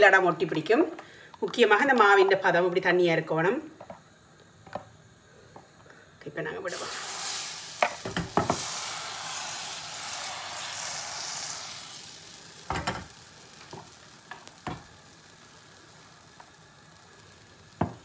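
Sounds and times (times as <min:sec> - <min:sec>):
batter sizzling in a pan: 0:06.5 - 0:18.0.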